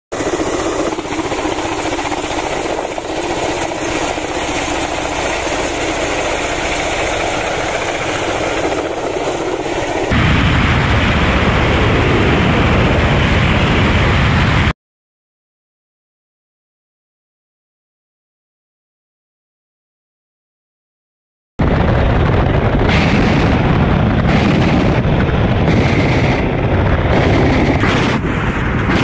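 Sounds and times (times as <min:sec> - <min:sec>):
helicopter flying past: 0:00.1 - 0:10.2, 0:21.6 - 0:29.0
deep helicopter rumble on board: 0:00.1 - 0:14.7, 0:21.6 - 0:29.0.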